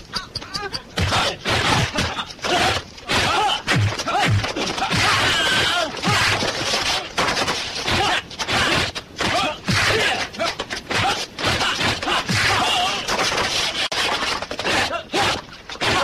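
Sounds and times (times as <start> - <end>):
fighters shouting and grunting: 0.6 - 7.2, 7.8 - 16.0
punch and kick impacts: 1.0 - 10.2.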